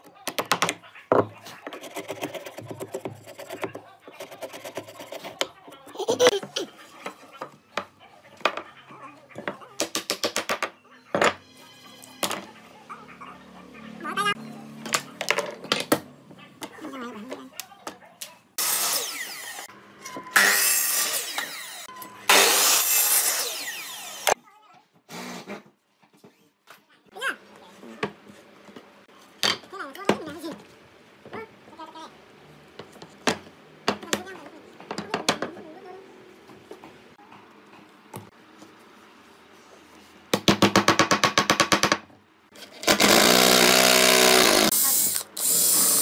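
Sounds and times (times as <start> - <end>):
miter saw cutting wood: 18.6 - 19.7, 20.4 - 24.4, 42.8 - 46.0.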